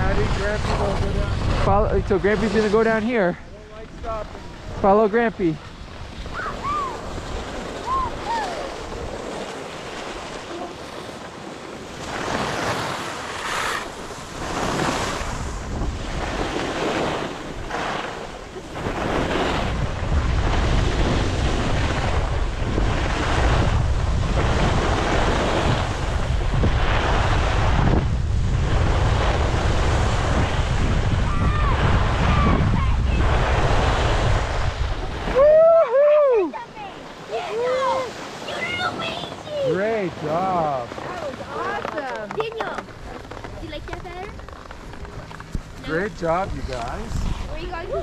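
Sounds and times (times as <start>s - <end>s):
skis scraping over snow: 0.0s - 6.1s, 8.7s - 32.3s, 37.3s - 48.0s
wind buffeting microphone: 0.0s - 48.0s.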